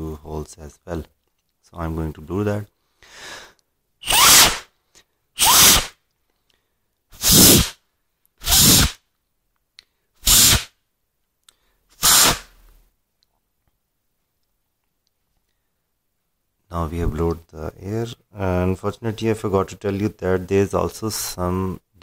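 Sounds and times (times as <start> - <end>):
short puffs of breath: 2.8 - 3.6, 4.9 - 7.8.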